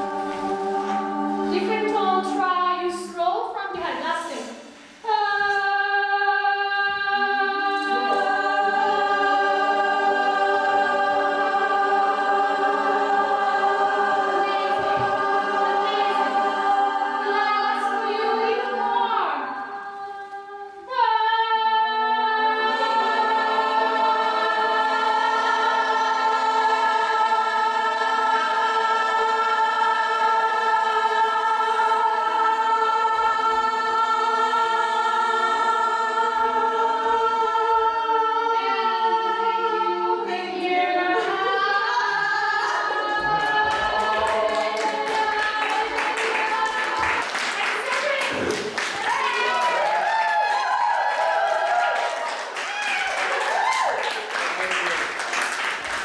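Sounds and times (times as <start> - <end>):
group singing held chord: 0.0 - 2.5, 4.6 - 52.6
hand clapping: 51.8 - 56.0.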